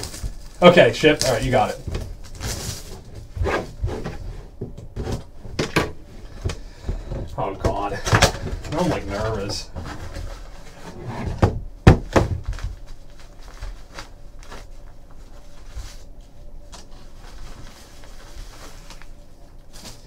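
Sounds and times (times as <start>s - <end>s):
soft rustling: 12.5s - 20.0s.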